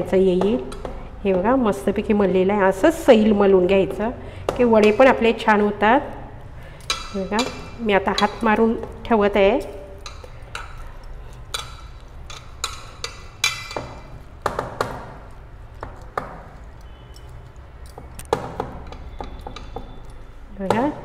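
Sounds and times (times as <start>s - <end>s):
bangles clinking against metal bowl: 6.6s - 14.4s, 15.3s - 21.0s.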